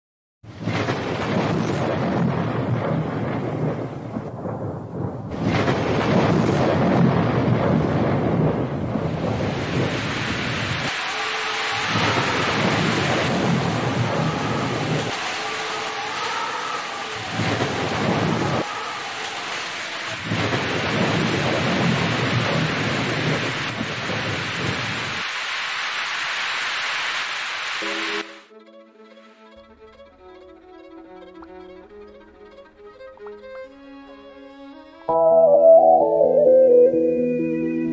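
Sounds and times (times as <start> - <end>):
thunder rumbling: 0.6 - 15.7, 17.1 - 25.2
rain-like hiss: 5.3 - 28.5.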